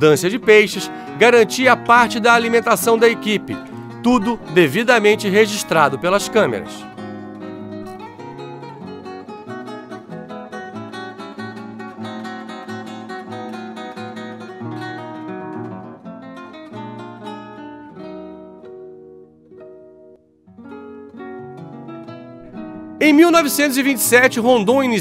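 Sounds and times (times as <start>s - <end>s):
acoustic guitar plucking: 0.0s - 25.0s.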